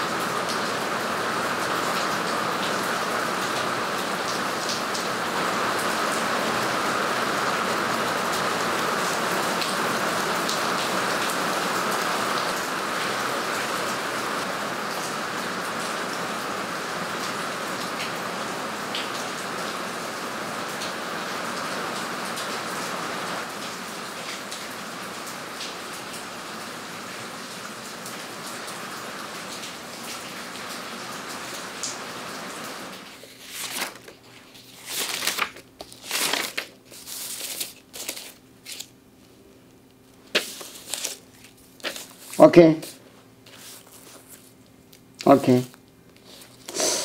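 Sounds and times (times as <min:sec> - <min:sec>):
steady rain falling: 0:00.0 - 0:34.2, 0:45.2 - 0:45.8
paper rustling: 0:33.1 - 0:38.9, 0:40.3 - 0:44.6.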